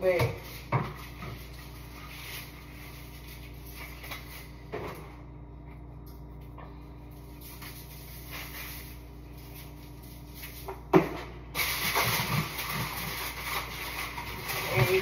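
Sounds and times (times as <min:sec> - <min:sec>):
rubbing and rustling: 0:11.6 - 0:15.0.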